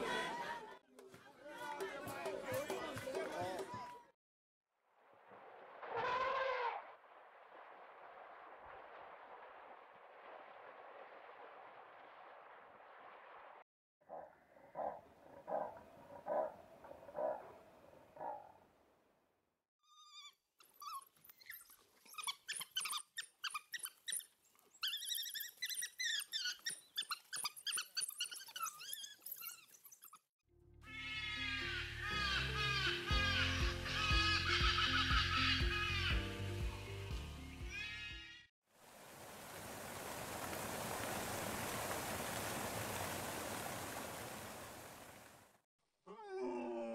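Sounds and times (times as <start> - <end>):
wild dogs twittering and squeaking: 14.1 - 17.5, 19.9 - 30.3
waterfall rushing: 38.8 - 45.4.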